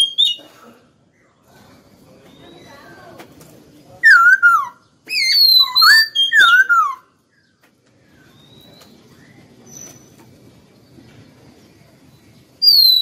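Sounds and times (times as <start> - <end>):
bird whistling song: 0.0 - 0.4, 4.0 - 10.2, 12.6 - 13.0.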